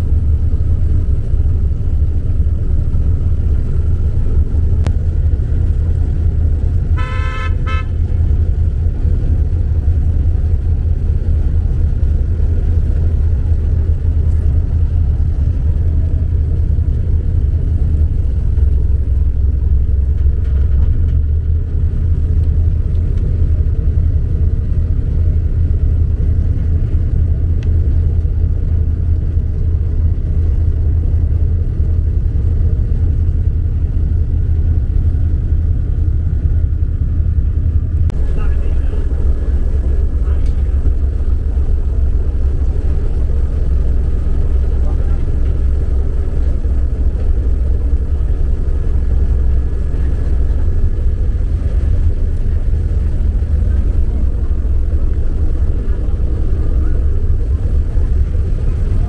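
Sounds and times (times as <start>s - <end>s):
boat engine rumble: 0.0s - 59.0s
boat horn toot: 6.8s - 8.4s.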